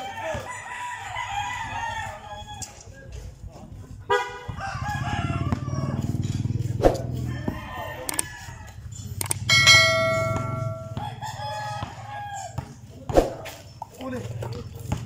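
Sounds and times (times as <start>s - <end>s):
rooster crowing: 0.0s - 2.7s, 4.5s - 6.3s, 7.1s - 8.9s, 9.5s - 12.7s
basketball bouncing on concrete: 9.2s - 15.0s.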